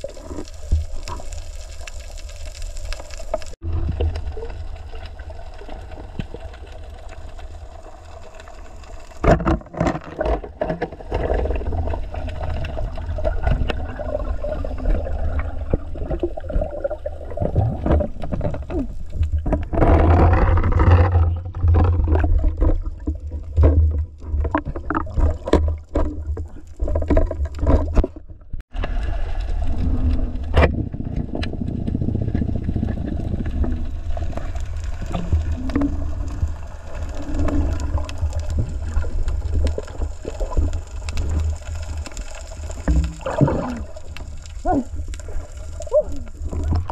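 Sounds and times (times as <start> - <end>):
underwater water rumble: 0.0 - 46.9
knocks and scrapes: 17.5 - 36.0.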